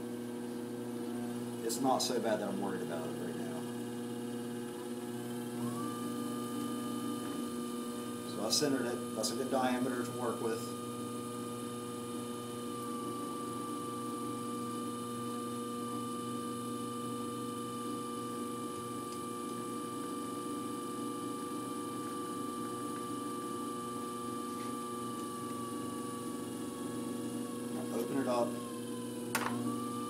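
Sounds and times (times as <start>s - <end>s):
potter's wheel motor hum: 0.0s - 30.0s.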